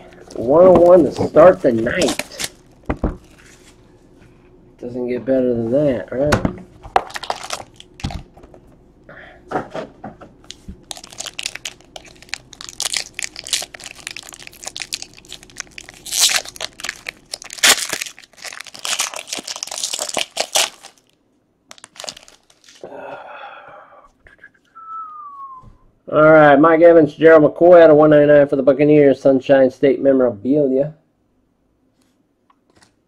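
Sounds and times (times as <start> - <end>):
foil wrapper crinkling and tearing: 1.4 - 3.4, 7.0 - 8.3, 10.5 - 22.8.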